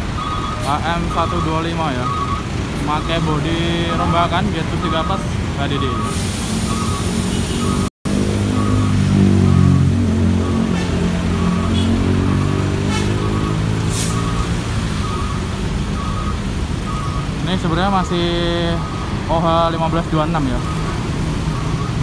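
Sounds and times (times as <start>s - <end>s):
bus diesel engine running: 0.0s - 22.0s
short electronic beeps: 0.1s - 7.9s, 8.5s - 17.4s
air hiss: 6.1s - 7.8s.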